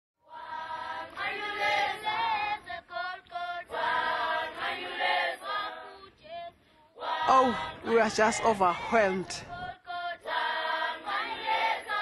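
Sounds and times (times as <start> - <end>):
choir singing: 0.2 - 12.0.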